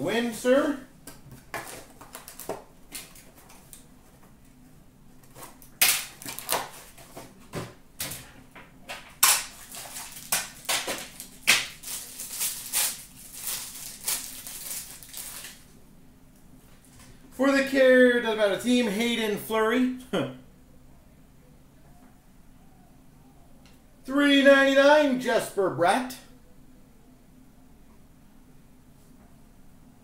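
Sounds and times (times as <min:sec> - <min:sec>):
foil wrapper crinkling and tearing: 0:01.6 - 0:03.8, 0:05.2 - 0:07.0, 0:09.2 - 0:15.7.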